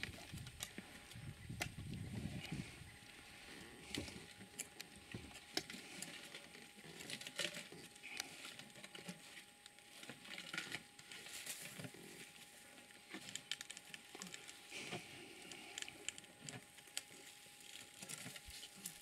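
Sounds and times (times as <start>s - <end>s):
twigs snapping and crackling: 0.0s - 19.0s
leaves rustling: 2.2s - 19.0s.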